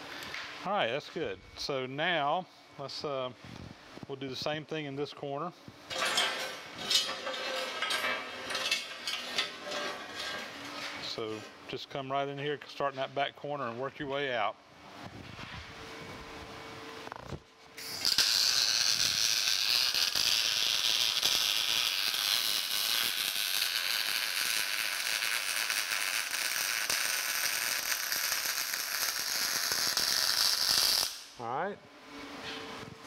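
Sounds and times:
welding arc crackling: 17.8 - 31.4.

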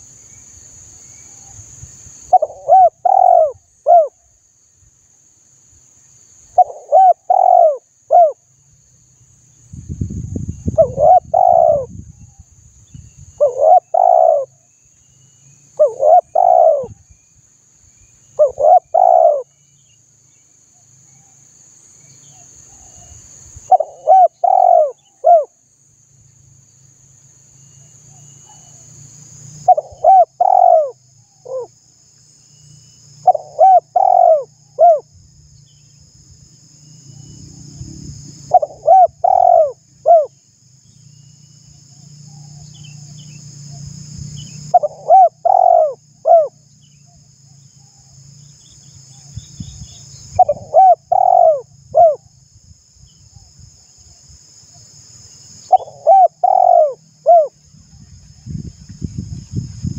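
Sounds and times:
dove cooing: 2.3 - 4.2, 6.6 - 8.4, 10.8 - 11.9, 13.4 - 14.6, 15.8 - 17.0, 18.4 - 19.5, 23.7 - 25.5, 29.7 - 31.7, 33.2 - 35.1, 38.5 - 40.3, 44.7 - 46.6, 50.4 - 52.3, 55.7 - 57.6.

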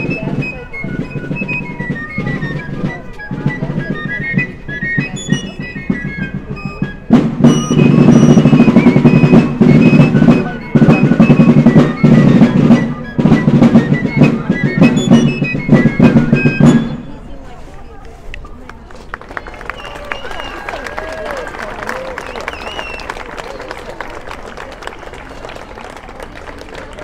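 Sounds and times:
drums steady beat: 0.0 - 17.1
melody of short notes: 0.0 - 17.1.

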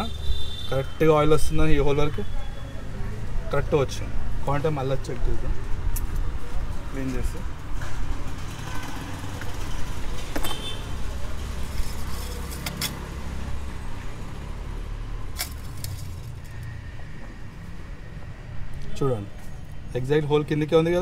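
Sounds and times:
metallic dipstick clicks and scrapes: 11.7 - 13.0.

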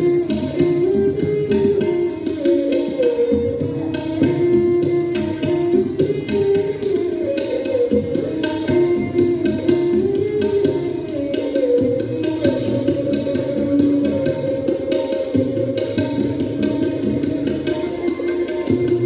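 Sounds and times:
bowed string melody: 0.0 - 19.0
tabla beat: 0.0 - 19.0.

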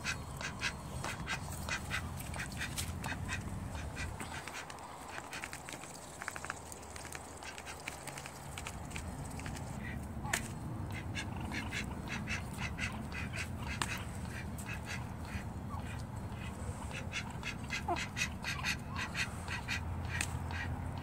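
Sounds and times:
duck quacks: 0.0 - 4.7, 9.8 - 21.0.

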